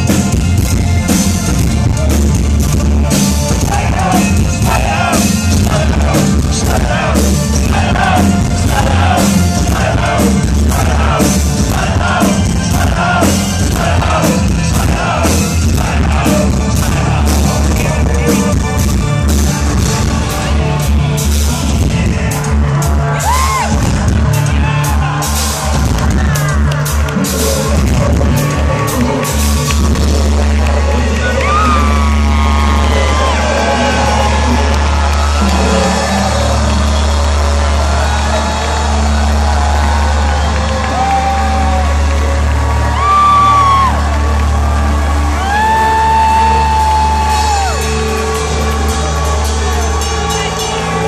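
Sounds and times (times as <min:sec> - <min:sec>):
live industrial band playing: 0:00.0 - 0:51.0
shouted sung vocal: 0:03.6 - 0:18.4.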